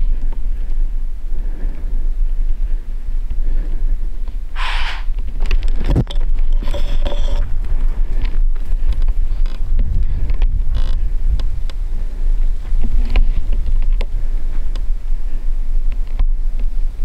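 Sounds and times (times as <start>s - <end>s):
wind buffeting microphone: 0.0s - 17.0s
short hissing burst: 4.6s - 5.1s.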